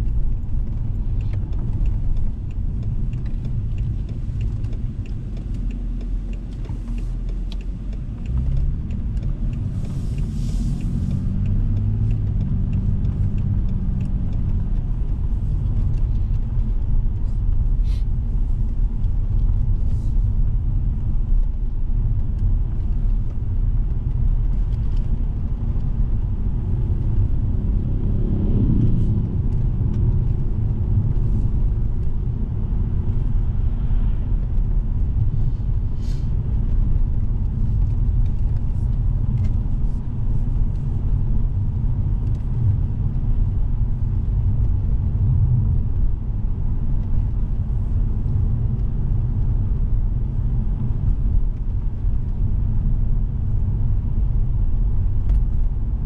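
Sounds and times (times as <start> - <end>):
tyres and engine rumble: 0.0 - 56.0.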